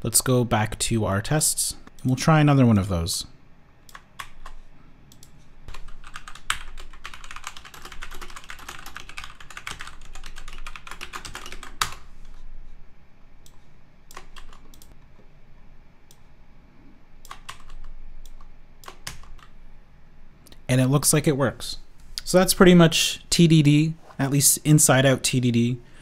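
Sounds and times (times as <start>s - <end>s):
typing on computer keyboard: 3.9s - 12.0s, 14.1s - 15.0s, 17.2s - 19.5s.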